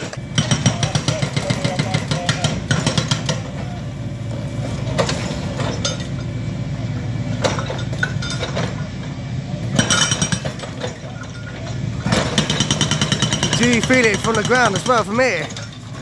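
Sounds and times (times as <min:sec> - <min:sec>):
hydraulic breaker pounding concrete: 0:00.0 - 0:03.9, 0:07.3 - 0:16.0.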